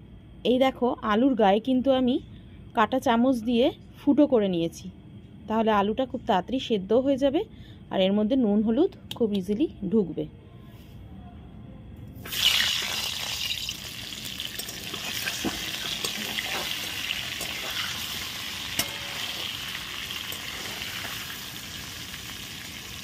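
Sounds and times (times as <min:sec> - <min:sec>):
potatoes sizzling in hot oil: 0:12.3 - 0:23.0.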